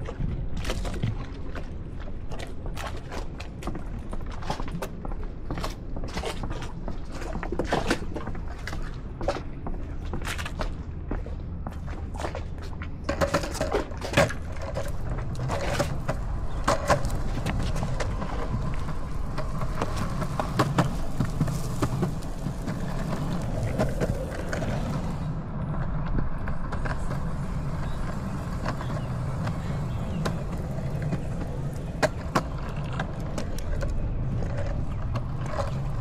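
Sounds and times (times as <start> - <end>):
longboard wheels rolling on concrete: 0.0 - 36.0.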